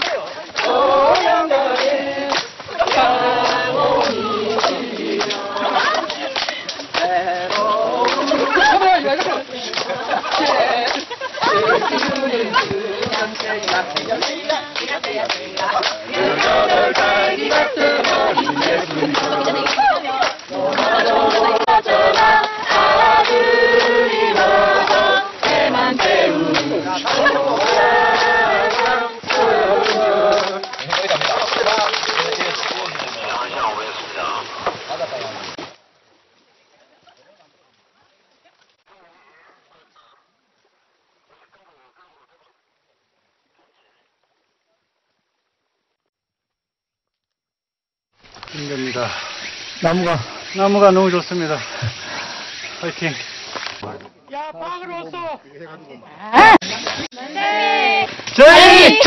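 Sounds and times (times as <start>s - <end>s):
group singing without instruments: 0.0s - 30.8s
people clapping in time: 0.0s - 33.9s.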